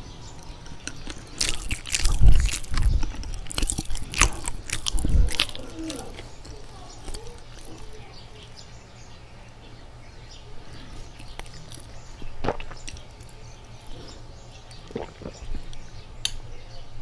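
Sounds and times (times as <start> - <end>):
steady low hum: 0.0 - 17.0
soft chewing: 0.3 - 8.7, 10.6 - 16.4
wet mouth clicks: 11.0 - 16.4.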